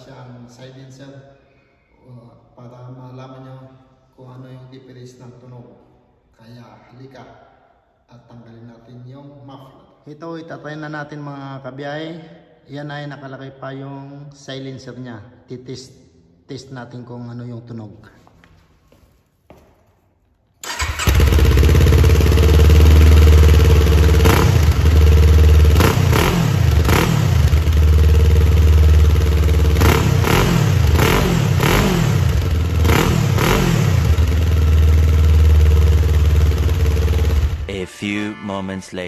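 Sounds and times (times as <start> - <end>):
motorcycle engine revving: 20.6 - 37.7.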